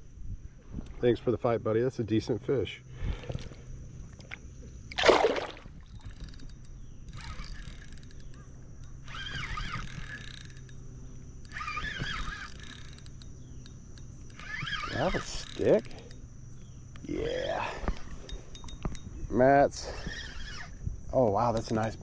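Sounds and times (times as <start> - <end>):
faint water sloshing: 2.9 - 13.0
fish splashing into water: 4.9 - 5.8.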